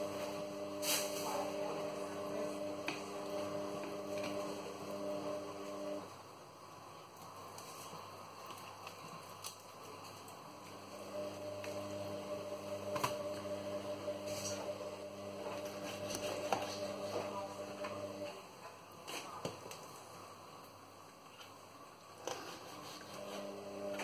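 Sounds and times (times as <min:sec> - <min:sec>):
induction hob humming: 0:00.0 - 0:06.7, 0:10.4 - 0:18.5, 0:22.8 - 0:24.0.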